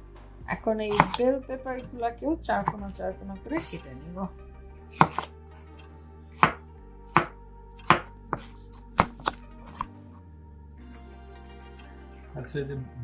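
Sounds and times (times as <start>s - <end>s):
knife striking cutting board: 0.9s - 1.2s, 2.6s - 2.9s, 4.9s - 5.3s, 6.4s - 9.9s.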